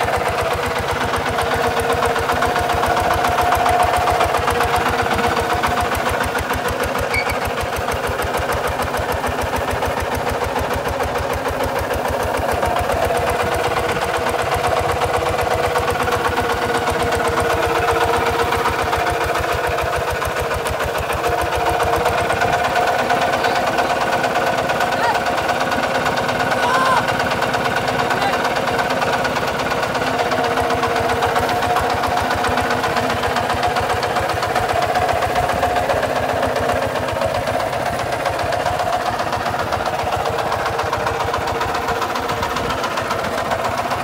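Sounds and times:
diesel tractor engine chugging: 0:00.0 - 0:44.0.

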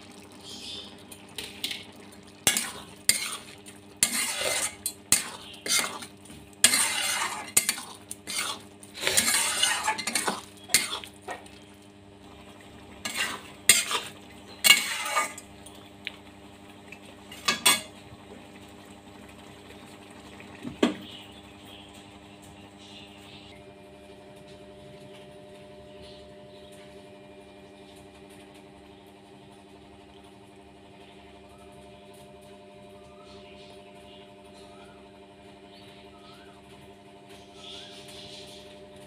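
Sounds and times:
steady low hum: 0:00.0 - 0:39.0
spatula scraping metal pan: 0:02.5 - 0:11.1, 0:13.0 - 0:15.5.

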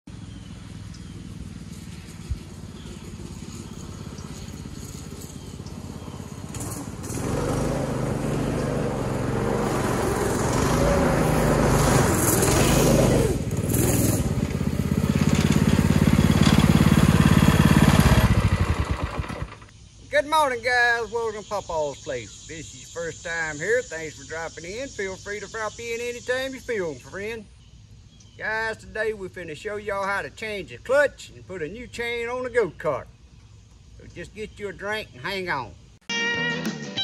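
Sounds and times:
go-kart engine running: 0:00.1 - 0:19.7
tyres crunching on gravel: 0:01.2 - 0:07.6.

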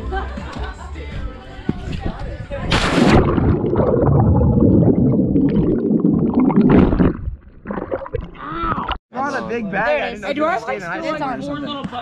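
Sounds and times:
muffled underwater bubbling: 0:02.7 - 0:09.0
water surface breaking: 0:02.7 - 0:09.0.

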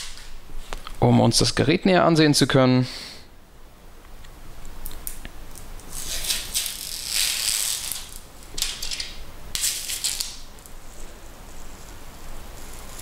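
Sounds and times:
plastic film peeling and crinkling: 0:04.8 - 0:13.0.

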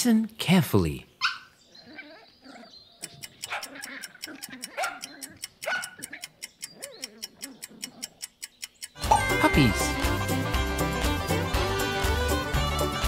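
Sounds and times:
puppies making high calls: 0:01.2 - 0:08.2
countdown timer ticking: 0:03.0 - 0:12.2.

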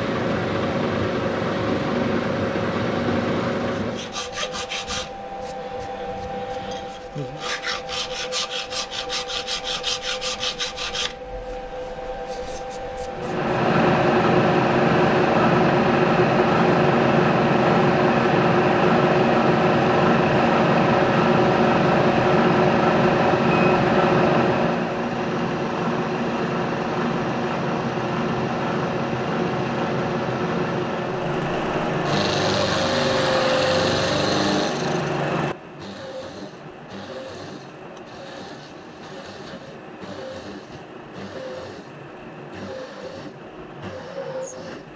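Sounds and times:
milling machine cutting steel: 0:03.8 - 0:14.9, 0:31.2 - 0:35.2, 0:35.8 - 0:41.9
hand file rasping on steel: 0:03.9 - 0:11.2, 0:35.8 - 0:41.9, 0:42.6 - 0:44.9.

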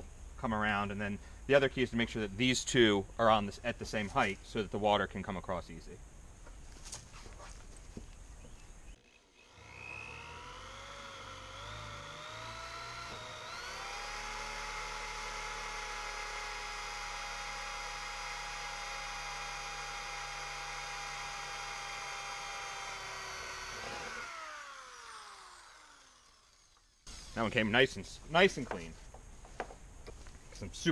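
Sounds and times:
electric drill cutting plastic: 0:09.0 - 0:27.4.

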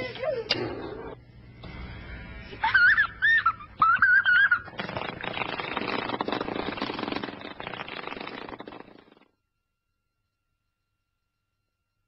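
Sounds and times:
scratchy rustling noise: 0:04.8 - 0:09.2.

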